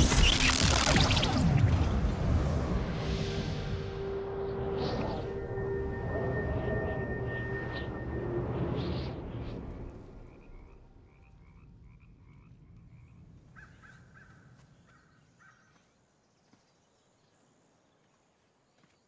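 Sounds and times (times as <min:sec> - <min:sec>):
low rumble: 0:00.0 - 0:13.6
faint wildlife chirps: 0:04.0 - 0:19.0.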